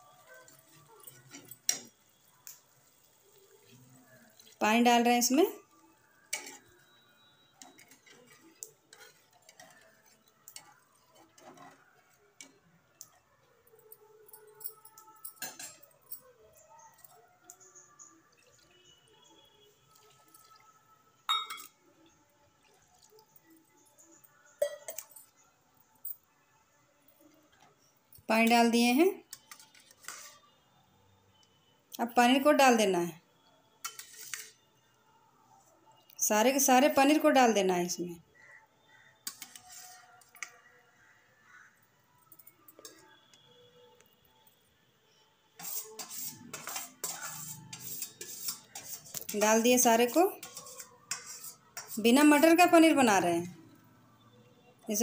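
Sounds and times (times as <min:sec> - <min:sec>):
metal utensil clinking on pan: 0:00.4 - 0:03.0, 0:06.3 - 0:06.8, 0:15.4 - 0:15.9, 0:21.3 - 0:21.8
metal spoon scraping steel pan: 0:06.2 - 0:12.6, 0:29.3 - 0:30.4, 0:33.8 - 0:34.6, 0:39.2 - 0:40.1, 0:45.6 - 0:52.4.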